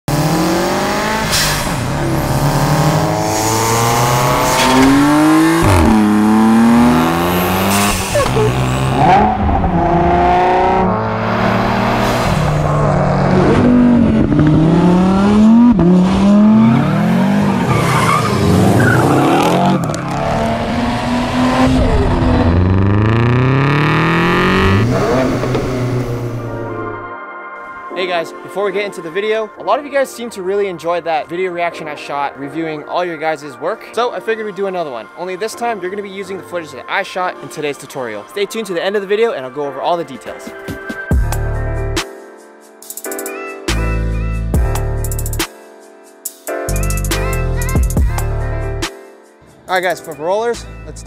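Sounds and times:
sports car engines revving: 0:00.1 - 0:27.0
cars passing whoosh: 0:00.1 - 0:27.1.

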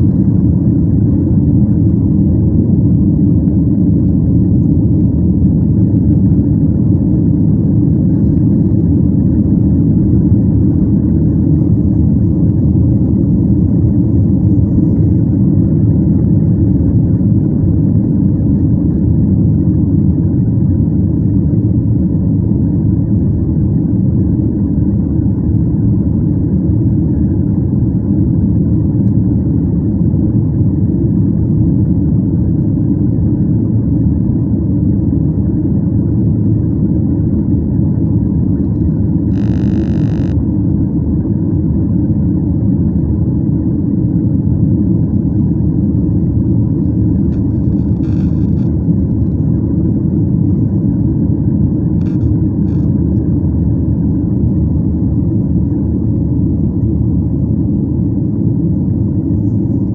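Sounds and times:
airliner cabin noise: 0:00.0 - 0:59.9
short high-pitched tone: 0:39.3 - 0:40.4.

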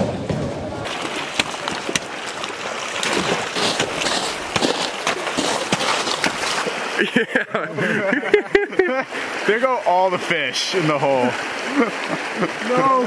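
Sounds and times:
water rushing: 0:00.2 - 0:13.0
waders splashing through slushy ice: 0:00.8 - 0:09.6
sharp ice clicks: 0:03.0 - 0:06.6.

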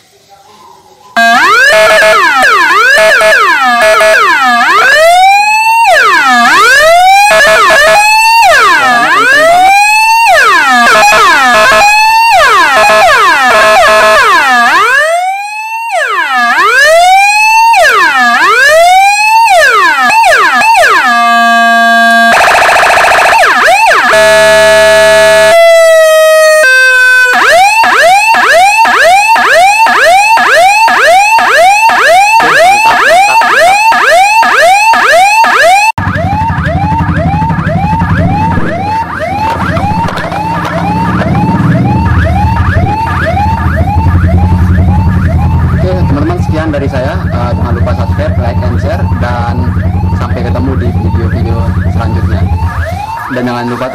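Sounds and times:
electronic siren changing tones: 0:01.2 - 0:53.9
low hum: 0:36.0 - 0:53.2.

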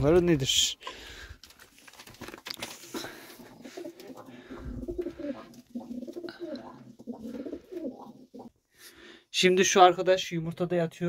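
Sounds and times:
pigeons cooing: 0:03.0 - 0:08.7.

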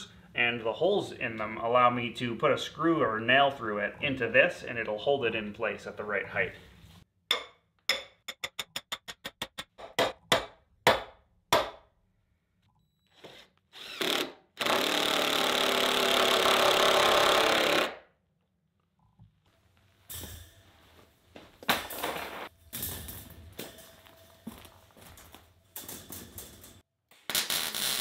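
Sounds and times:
cordless drill driving screw: 0:13.2 - 0:18.0.

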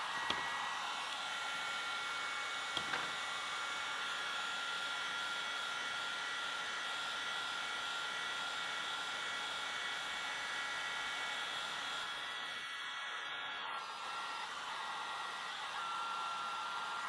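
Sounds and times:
heat gun blowing hiss: 0:00.0 - 0:05.5.

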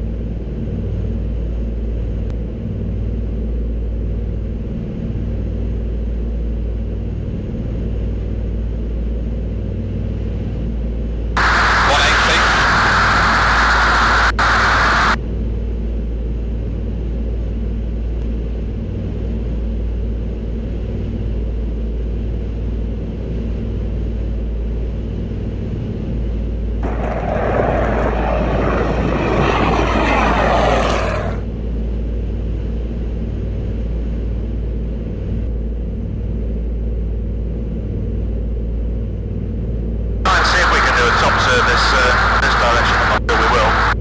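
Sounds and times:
aircraft engines droning: 0:00.0 - 0:44.0
loud hissing surge: 0:11.4 - 0:15.2, 0:26.8 - 0:31.4.

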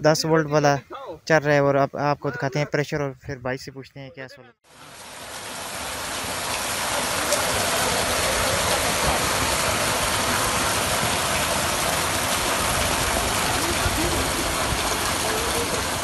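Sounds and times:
water gushing into a tank: 0:04.7 - 0:16.0.

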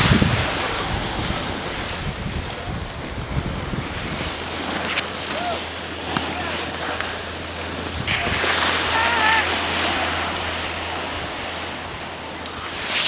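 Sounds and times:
wind on microphone: 0:00.0 - 0:05.5, 0:07.6 - 0:13.0
skis sliding over snow: 0:03.6 - 0:13.0.

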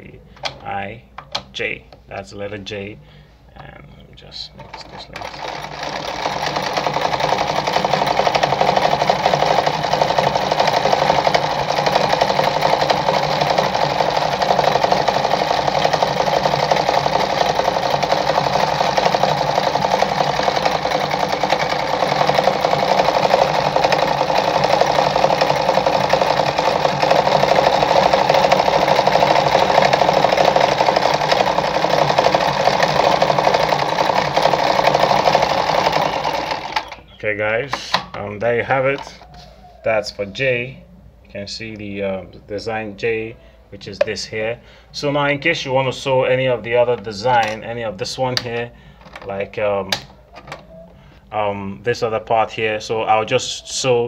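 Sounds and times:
sewing machine running: 0:04.6 - 0:37.1.

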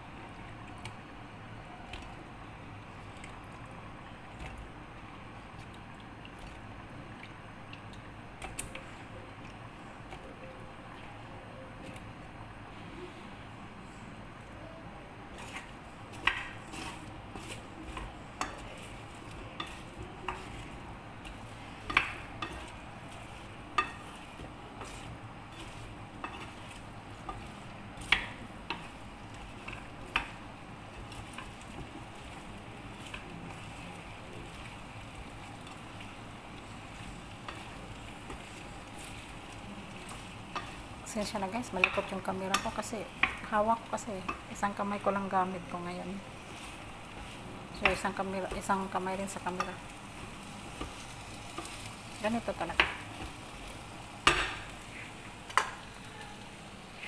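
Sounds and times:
frying sizzle: 0:00.0 - 0:57.0
spatula stirring in frying pan: 0:15.2 - 0:57.0
spatula knocking pan: 0:16.1 - 0:33.3, 0:41.6 - 0:43.6, 0:54.2 - 0:54.7.

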